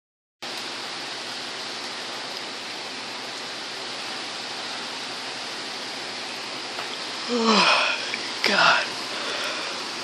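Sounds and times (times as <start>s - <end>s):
heavy rain pouring: 0.4s - 10.0s.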